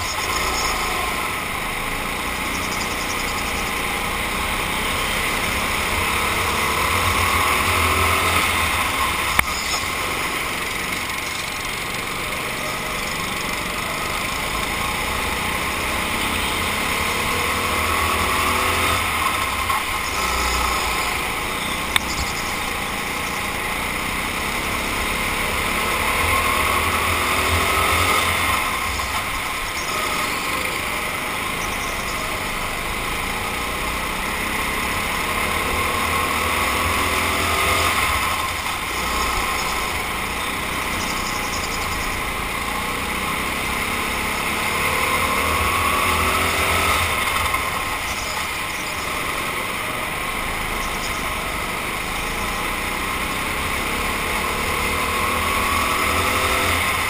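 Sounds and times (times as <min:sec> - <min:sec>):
kart motor revving: 0:00.0 - 0:57.0.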